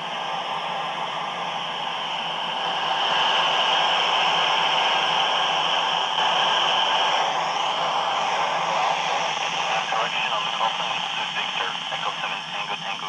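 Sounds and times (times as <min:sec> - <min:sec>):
radio static hiss: 0:06.0 - 0:13.0.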